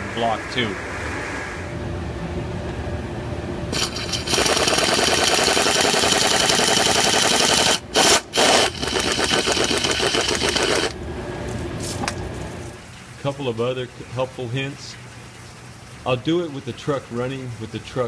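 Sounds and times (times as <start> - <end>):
power ratchet running: 3.7 - 11.0.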